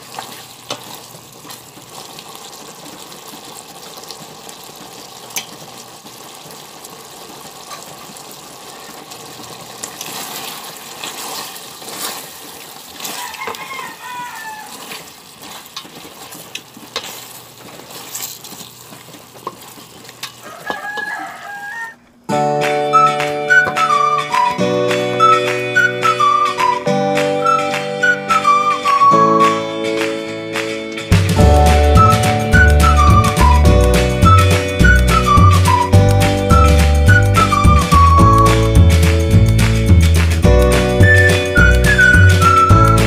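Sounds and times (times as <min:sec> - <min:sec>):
sauce bubbling and sizzling in pot: 0:00.0 - 0:21.7
spatula stirring and scraping pot: 0:09.4 - 0:21.1.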